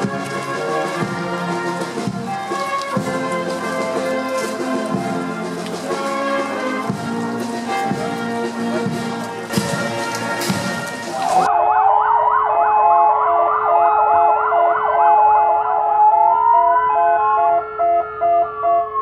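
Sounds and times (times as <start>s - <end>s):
brass band music: 0.0s - 11.5s
sirens yelping and wailing: 8.6s - 19.0s
pulsing beep: 12.1s - 19.0s.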